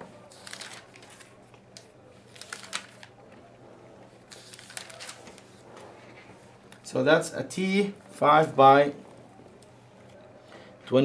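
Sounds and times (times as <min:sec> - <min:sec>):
pages turning and rustling: 0:00.3 - 0:01.6, 0:02.3 - 0:03.2, 0:04.3 - 0:06.8.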